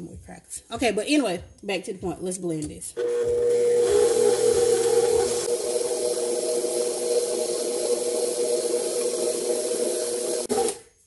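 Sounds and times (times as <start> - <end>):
stand mixer motor humming: 3.0 - 10.8.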